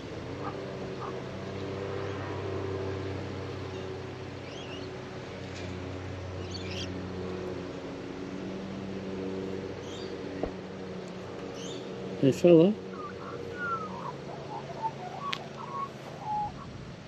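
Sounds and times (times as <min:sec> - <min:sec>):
magpie warbling: 0:12.8 - 0:16.8.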